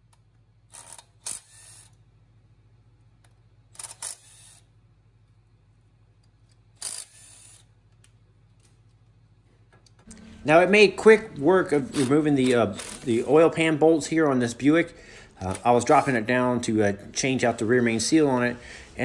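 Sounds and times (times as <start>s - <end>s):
impact wrench bursts: 0.7s - 2.0s, 3.7s - 4.7s, 6.7s - 7.8s, 11.9s - 13.2s.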